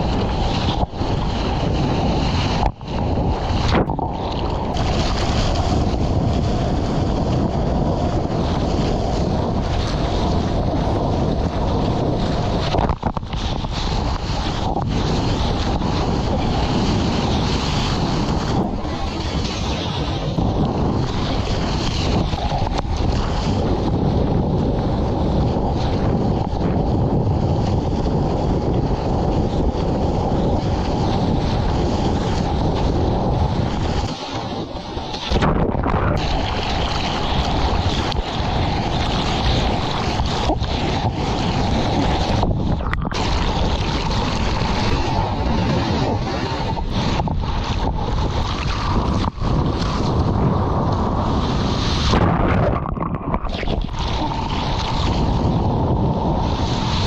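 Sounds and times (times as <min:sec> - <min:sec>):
sea water sloshing: 0:00.0 - 0:07.0, 0:31.6 - 0:55.8
wind on microphone: 0:00.0 - 0:57.0.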